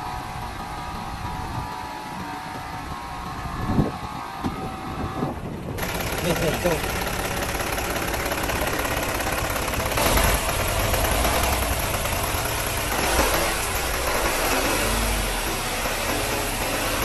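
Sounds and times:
diesel engine idling: 4.9s - 17.0s.

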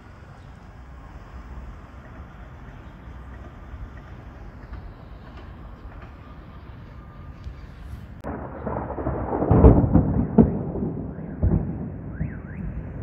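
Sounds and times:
thunder rumbling and cracking: 8.2s - 13.0s.

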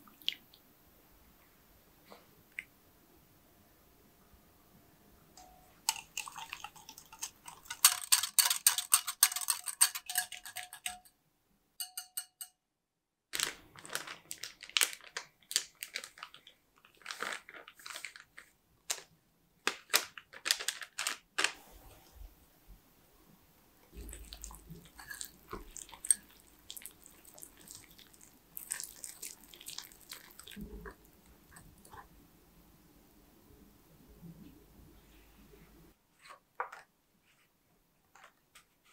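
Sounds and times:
whisk clicking against glass bowl: 5.9s - 11.1s, 11.8s - 12.5s
whisk scraping through batter: 5.9s - 11.1s, 25.0s - 26.3s
plastic bag crinkling: 13.4s - 21.6s.

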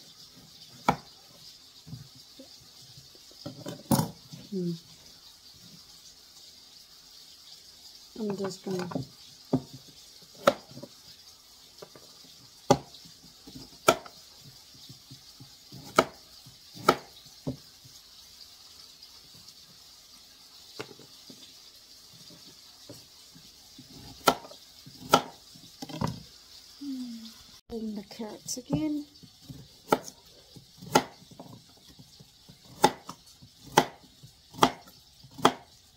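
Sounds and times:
knife slicing carrot: 0.7s - 1.2s, 10.3s - 10.9s, 12.7s - 14.9s, 15.6s - 17.6s, 23.8s - 26.0s, 29.2s - 30.2s, 30.8s - 35.8s.

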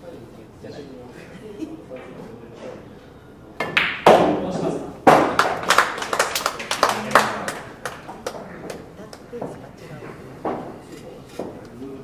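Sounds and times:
cue striking pool ball: 3.6s - 5.7s
pool ball dropping into pocket: 3.6s - 6.0s
people clapping: 5.1s - 9.3s.

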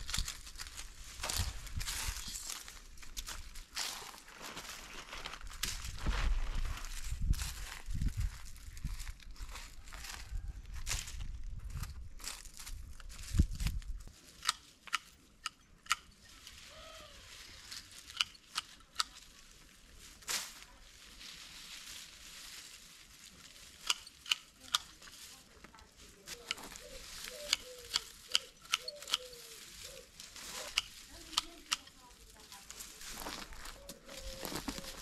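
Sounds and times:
dry stems rustling: 0.0s - 15.2s, 16.1s - 35.0s
sharp clicks and snaps: 14.4s - 16.1s, 23.8s - 24.9s.

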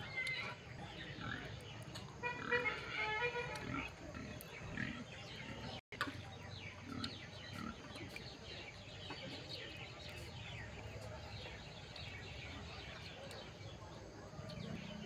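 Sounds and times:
birds chirping: 0.0s - 15.0s
quiet rural background: 0.0s - 15.0s.

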